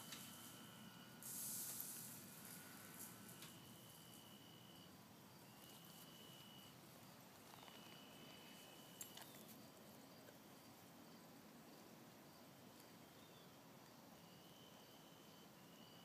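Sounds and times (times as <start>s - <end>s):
faint outdoor ambience: 0.0s - 16.0s.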